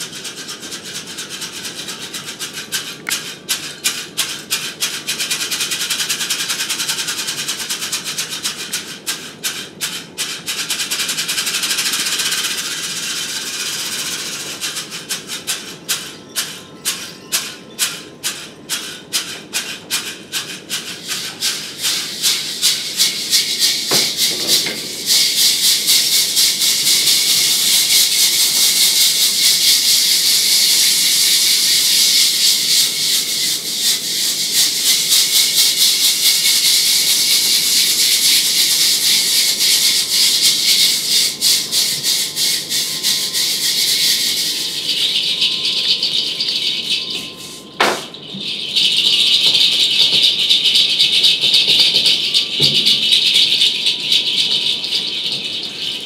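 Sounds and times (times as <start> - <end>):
wooden rattles shaken: 0.1 - 5.2, 22.5 - 25.9
sharp knock: 47.8 - 48.2.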